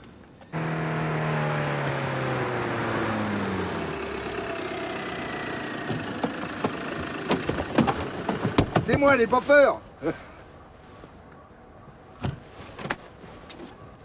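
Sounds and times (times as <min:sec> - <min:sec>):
road noise: 0:00.0 - 0:14.0
car engine: 0:00.5 - 0:08.8.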